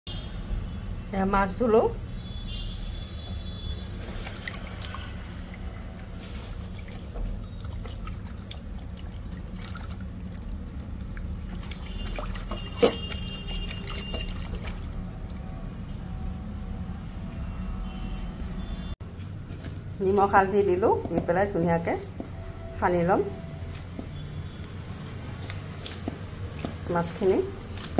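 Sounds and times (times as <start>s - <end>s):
water sloshing and dripping: 3.7s - 15.9s, 23.6s - 27.9s
small splashes and clicks: 4.0s - 15.5s, 24.6s - 26.7s.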